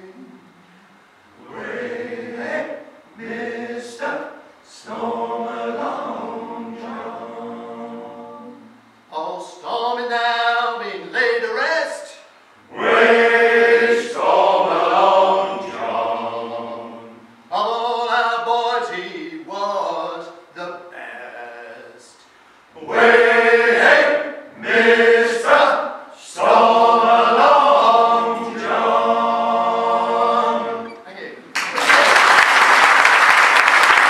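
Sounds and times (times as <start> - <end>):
male choir singing in harmony: 1.3 - 8.8, 12.6 - 22.2, 22.8 - 31.0.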